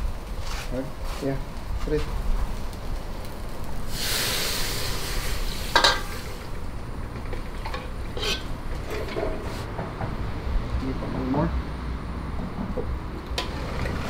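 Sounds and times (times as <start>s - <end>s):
liquid sizzling in hot wok: 0.0s - 9.7s
ladle scraping wok: 3.9s - 9.7s, 13.4s - 14.0s.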